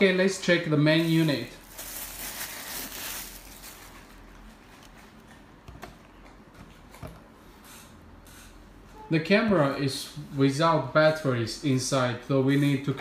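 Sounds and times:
plastic bag crinkling: 0:00.9 - 0:05.2.

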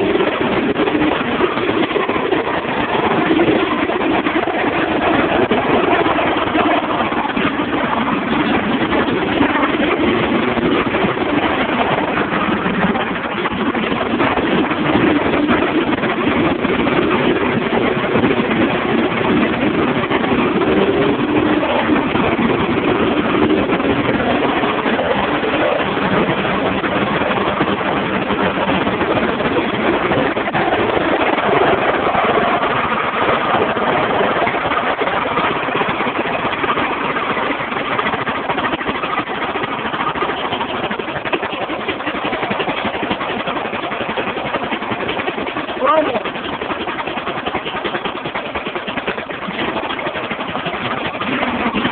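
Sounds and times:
lawnmower engine running: 0:44.6 - 0:51.9.

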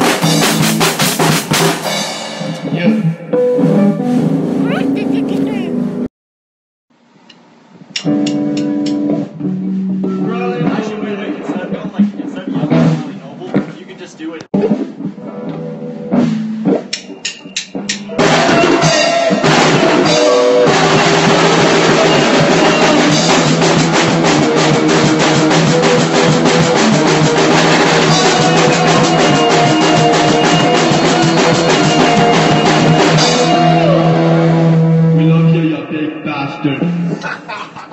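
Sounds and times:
punk band playing loud: 0:00.0 - 0:06.0, 0:12.0 - 0:13.7, 0:14.6 - 0:35.2.

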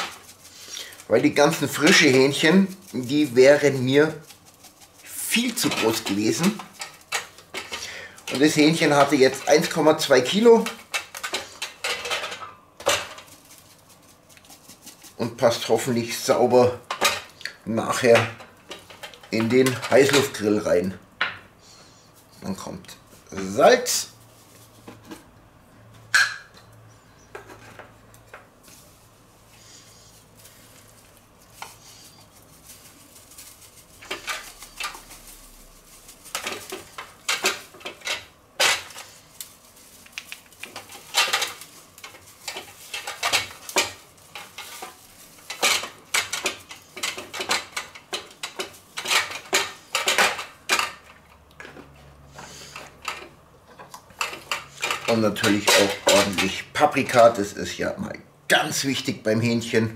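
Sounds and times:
spice shakers rattling and clinking: 0:00.0 - 0:20.4, 0:30.2 - 0:51.2.

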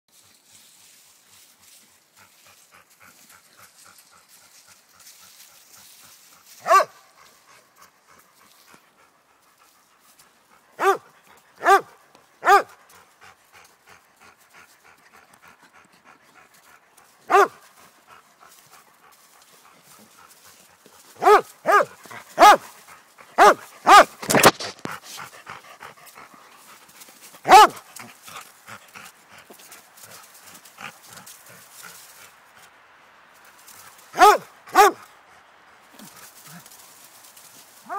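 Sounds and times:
dog panting: 0:01.7 - 0:32.7
dog barking: 0:06.6 - 0:07.0, 0:10.8 - 0:12.8, 0:17.3 - 0:17.6, 0:21.2 - 0:22.7, 0:23.4 - 0:24.4, 0:27.4 - 0:27.8, 0:34.2 - 0:35.0.

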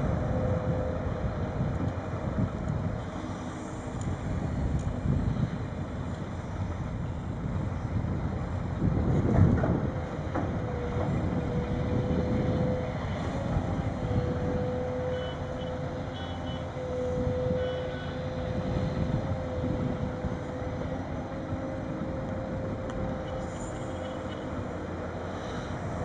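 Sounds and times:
held whine: 0:10.3 - 0:26.0.

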